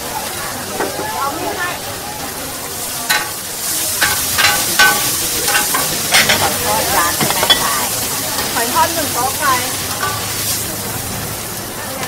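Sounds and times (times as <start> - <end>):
food sizzling: 0.0 - 12.0
metal utensil clanking on pan: 3.1 - 8.7, 9.8 - 10.7.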